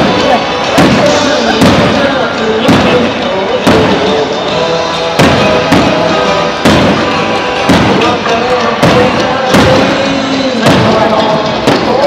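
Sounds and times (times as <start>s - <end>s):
fireworks bangs: 0.0s - 12.0s
music: 0.0s - 12.0s.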